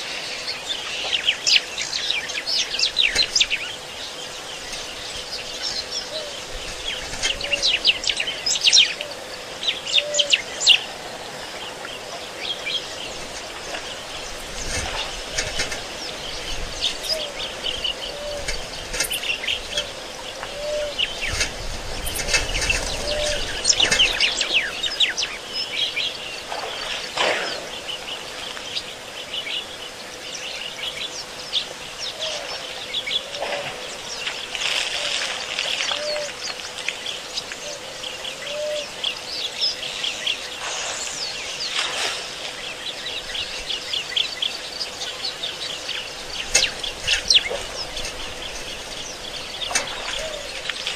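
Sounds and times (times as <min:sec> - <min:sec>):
birds chirping: 0:00.0 - 0:50.9
low arching bird call: 0:07.4 - 0:11.0, 0:16.8 - 0:21.4, 0:22.1 - 0:28.2, 0:35.8 - 0:36.5, 0:37.6 - 0:39.1, 0:46.6 - 0:50.8.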